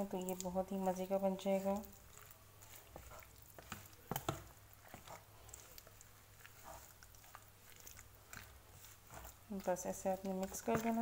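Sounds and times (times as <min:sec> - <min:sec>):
wet squelching of stirred meat: 0:00.0 - 0:11.0.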